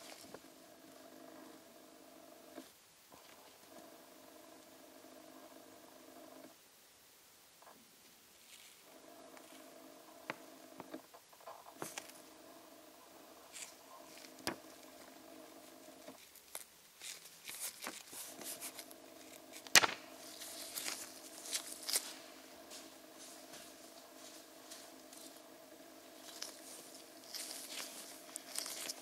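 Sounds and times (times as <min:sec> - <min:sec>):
steady hum: 0:00.0 - 0:06.6, 0:08.8 - 0:16.2, 0:17.7 - 0:29.0
small objects clicking and rustling: 0:16.1 - 0:22.2, 0:26.2 - 0:29.0.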